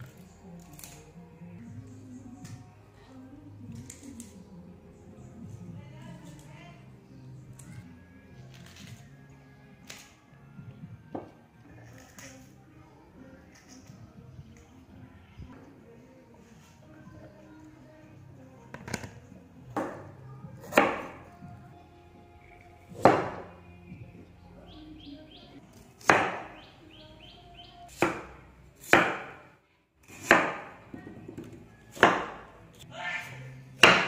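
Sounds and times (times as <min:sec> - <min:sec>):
cleaver chopping on wooden board: 0:20.7 - 0:21.2, 0:23.0 - 0:23.5, 0:26.0 - 0:26.5, 0:27.9 - 0:29.4, 0:30.1 - 0:30.8, 0:32.0 - 0:32.4, 0:33.8 - 0:34.0.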